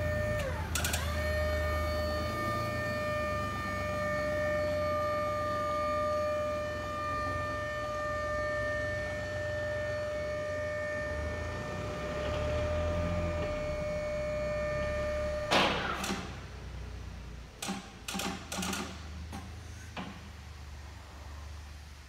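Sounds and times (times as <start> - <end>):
hydraulic lift pump whining: 0.0 - 16.6
machine clunk: 15.5 - 16.3.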